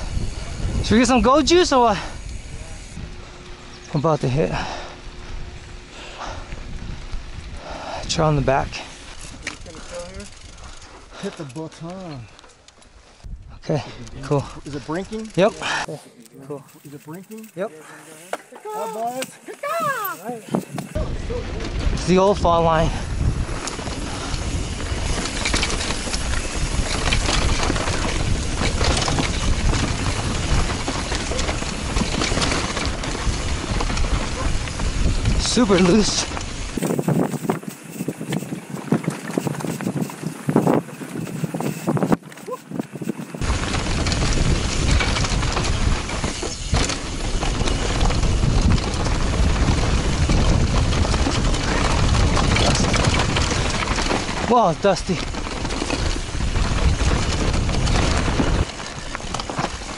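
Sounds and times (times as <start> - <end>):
tyre and wind rumble: 0.0 - 15.9, 18.6 - 59.9
bike rattles and knocks: 8.1 - 12.9, 13.7 - 15.8, 16.4 - 59.9.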